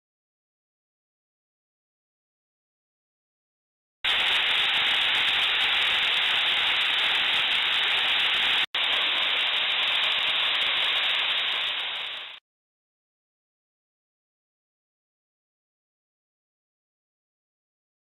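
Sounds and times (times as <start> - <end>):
waterfall splashing into pool: 4.1 - 12.4.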